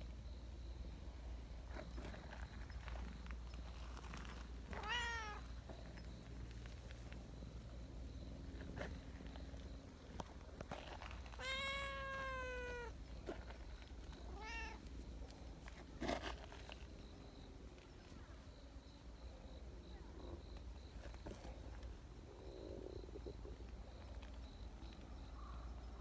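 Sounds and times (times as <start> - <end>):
cat meowing: 4.8 - 5.4, 11.4 - 13.0, 14.3 - 14.8.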